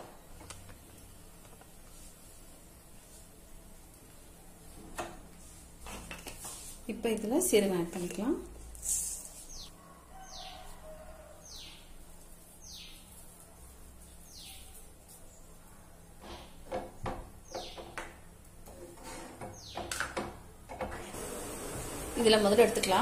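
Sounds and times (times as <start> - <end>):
bird chirping: 9.4 - 10.6, 11.4 - 11.9, 12.6 - 13.2, 14.2 - 15.4, 17.4 - 18.0, 19.5 - 19.9.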